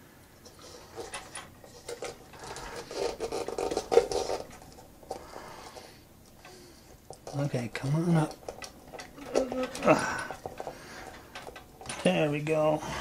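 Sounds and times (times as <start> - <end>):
small clicks taps and scratches: 0.4 - 12.2.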